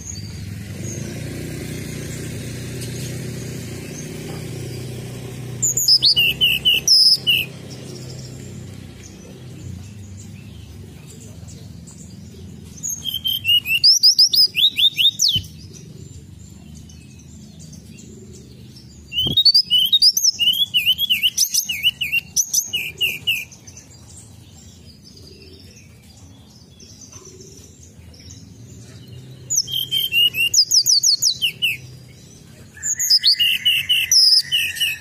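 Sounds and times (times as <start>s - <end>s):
bird whistled song: 5.6s - 8.4s, 12.8s - 15.8s, 18.7s - 23.7s, 29.4s - 32.0s, 32.7s - 35.0s.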